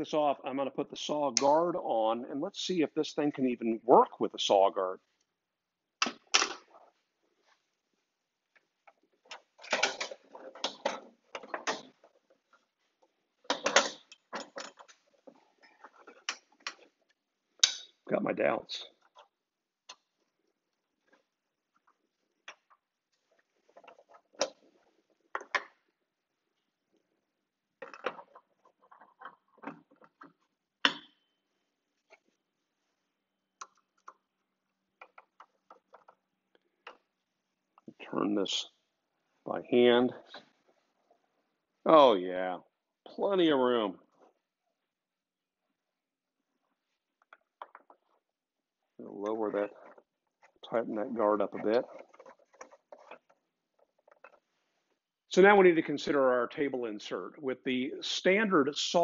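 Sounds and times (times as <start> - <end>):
clicks rattles and scrapes on metal: 9.3 - 12.6, 27.8 - 31.1, 51.2 - 54.6.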